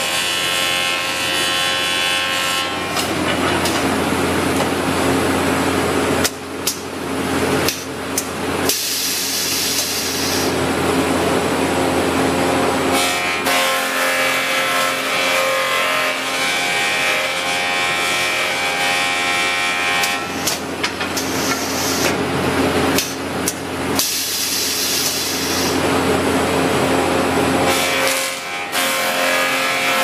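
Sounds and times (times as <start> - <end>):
machine clamps clunking: 3.0 - 3.9.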